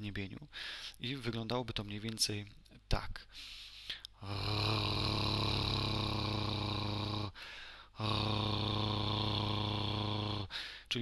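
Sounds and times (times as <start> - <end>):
man making guttural r sound: 4.2 - 7.4, 8.0 - 10.6.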